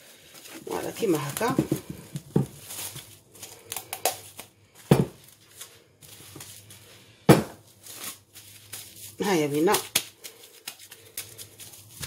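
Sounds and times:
plastic wrap rustling: 0:00.0 - 0:12.0
sharp knocks on wooden worktop: 0:07.3 - 0:07.6.

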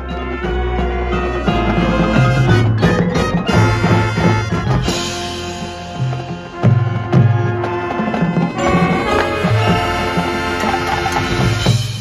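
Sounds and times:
brass chords: 0:00.0 - 0:12.0
drum-line percussion: 0:00.0 - 0:12.0
marching band playing: 0:00.0 - 0:12.0.

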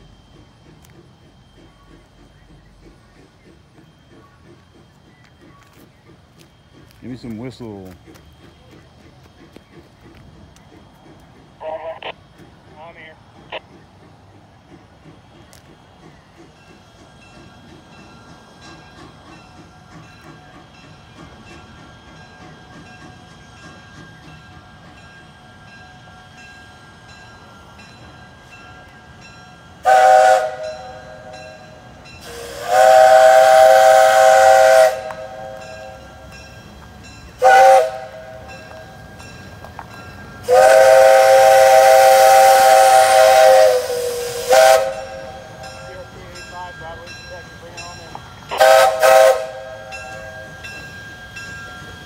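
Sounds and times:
steam locomotive whistle blasts: 0:29.8 - 0:36.2, 0:37.4 - 0:39.1, 0:40.4 - 0:45.9, 0:48.4 - 0:51.4.

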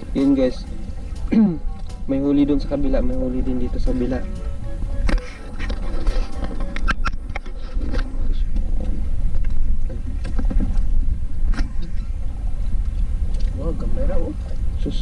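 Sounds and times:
water lapping against boat hull: 0:00.0 - 0:02.2
steady low rumble: 0:00.0 - 0:15.0.

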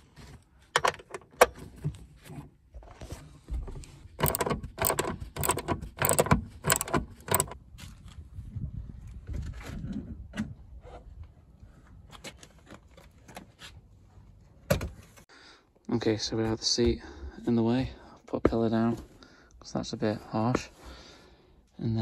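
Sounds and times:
socket ratchet clicking: 0:04.2 - 0:07.6.

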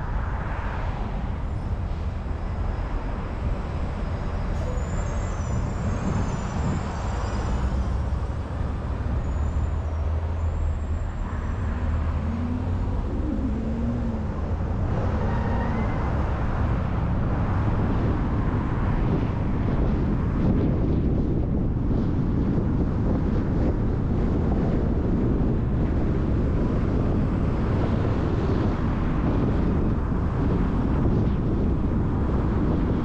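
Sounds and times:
car engine and tyre rumble: 0:00.0 - 0:33.0.

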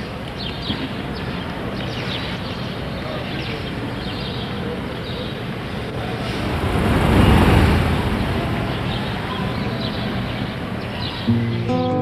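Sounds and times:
traffic hubbub: 0:00.0 - 0:12.0
vehicle passing: 0:05.8 - 0:11.4.

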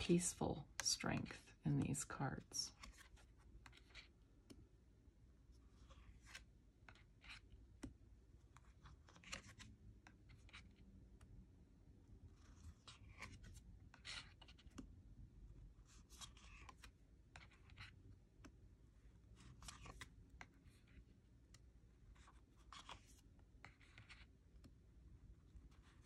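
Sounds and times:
cards sliding and tapping: 0:02.8 - 0:04.6, 0:05.7 - 0:11.3, 0:12.8 - 0:14.9, 0:15.9 - 0:18.6, 0:19.3 - 0:24.8.

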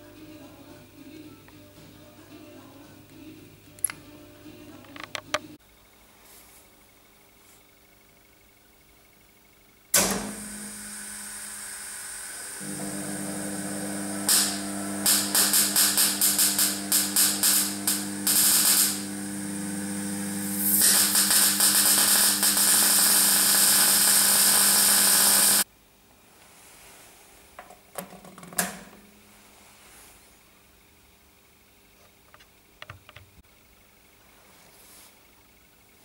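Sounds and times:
welder transformer hum: 0:09.9 - 0:25.7
welding arc sizzling and popping: 0:10.3 - 0:25.7.

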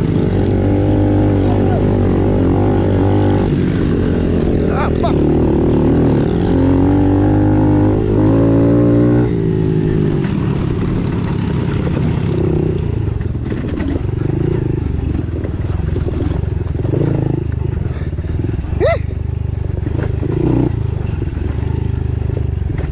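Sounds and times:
motorcycle engine revving: 0:00.0 - 0:22.9
trail clatter: 0:09.3 - 0:22.9.

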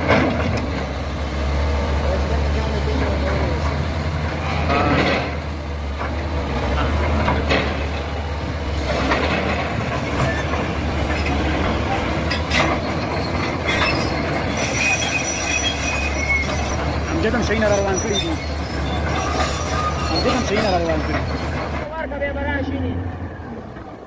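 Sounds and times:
heavy diesel machinery running: 0:00.0 - 0:24.0
metallic clanks and knocks: 0:04.5 - 0:08.1, 0:08.8 - 0:13.9
high-pitched squeal: 0:12.3 - 0:21.8.

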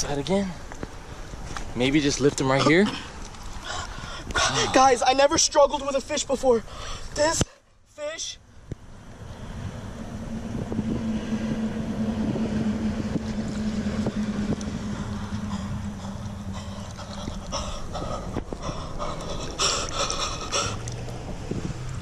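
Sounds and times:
water sloshing and splashing: 0:00.9 - 0:05.2, 0:09.0 - 0:22.0
low engine hum: 0:08.4 - 0:22.0.

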